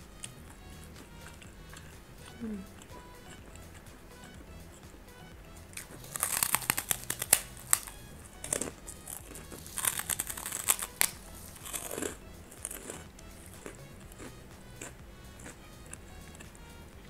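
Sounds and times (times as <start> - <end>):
crunching crisp cracker: 5.8 - 16.5.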